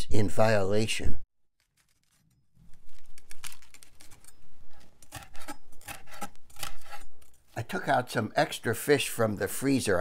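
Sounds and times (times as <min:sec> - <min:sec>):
knife slicing pepper on wooden board: 0:03.4 - 0:07.1.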